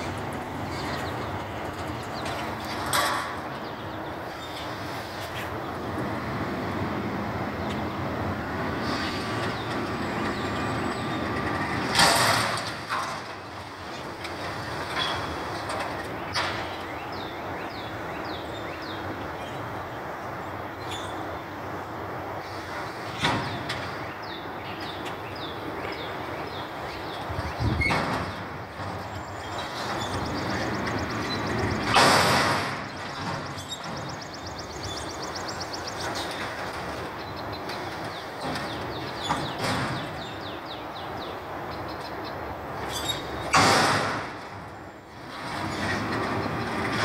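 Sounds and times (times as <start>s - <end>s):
metal bangs from dumpster: 27.7s - 34.2s, 38.4s - 40.3s, 43.4s - 44.6s.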